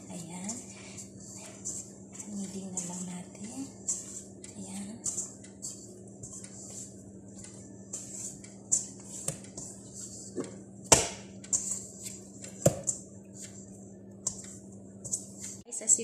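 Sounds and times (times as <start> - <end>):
hands kneading dough: 0.0 - 15.6
dough knocking against metal bowl: 4.9 - 13.0.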